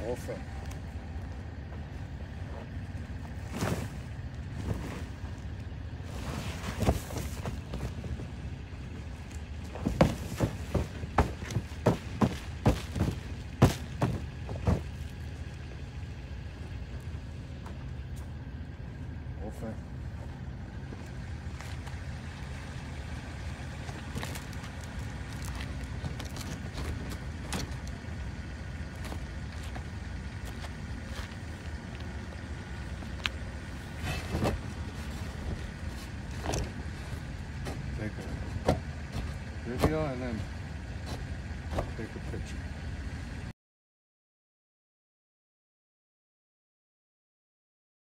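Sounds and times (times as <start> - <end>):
steady low hum: 0.0 - 43.5
metal frame thudding on gravel: 9.7 - 15.0.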